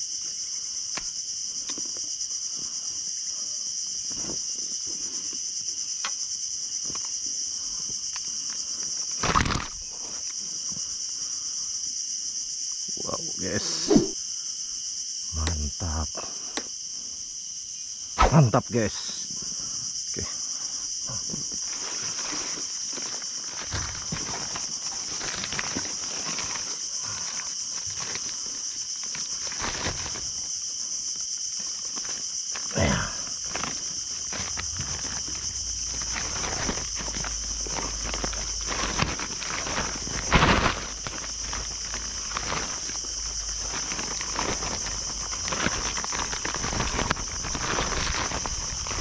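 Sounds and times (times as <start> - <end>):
high-pitched insect chorus: 0.0 - 49.0
plastic sack rustling: 9.0 - 10.2, 21.4 - 49.0
handling noise: 33.4 - 49.0.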